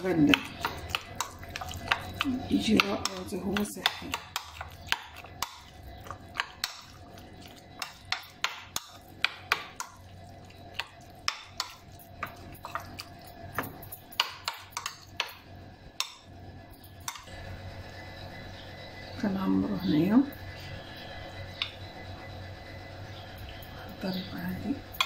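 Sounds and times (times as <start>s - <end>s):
metal spoon stirring in bowl: 0.0s - 15.4s, 16.8s - 17.3s.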